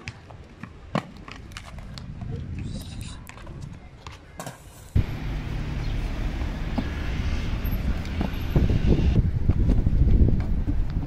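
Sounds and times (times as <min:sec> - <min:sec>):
outdoor rumble and hiss: 0:04.1 - 0:11.0.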